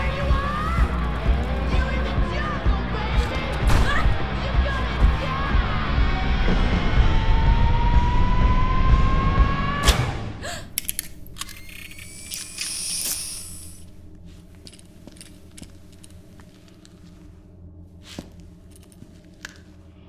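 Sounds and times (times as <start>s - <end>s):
low steady hum: 10.4s - 20.0s.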